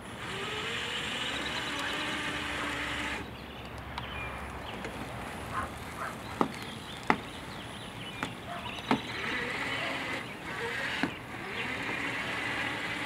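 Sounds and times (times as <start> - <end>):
snow blower motor whir: 0.0 - 3.3, 8.6 - 13.0.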